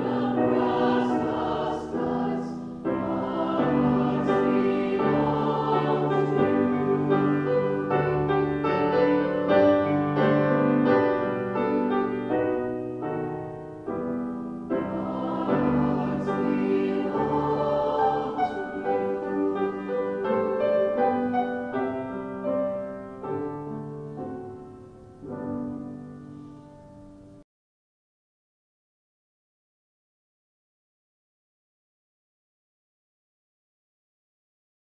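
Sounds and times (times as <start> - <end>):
mixed choir singing: 0.0 - 11.7, 14.7 - 22.9
grand piano accompaniment: 0.0 - 27.4.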